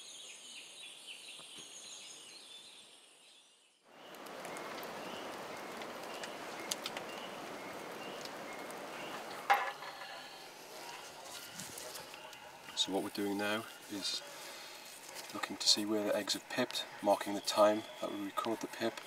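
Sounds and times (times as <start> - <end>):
birds and insects chirping: 0.0 - 19.0
campfire crackling: 3.9 - 19.0.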